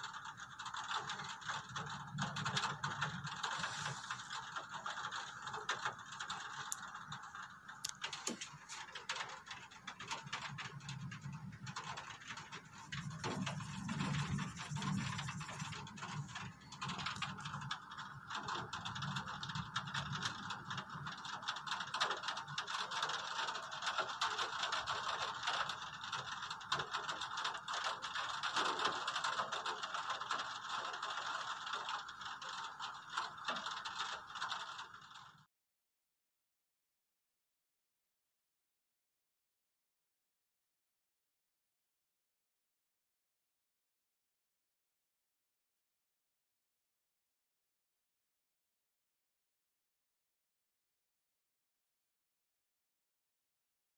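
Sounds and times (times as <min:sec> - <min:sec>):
heavy rain falling: 0:00.1 - 0:35.2.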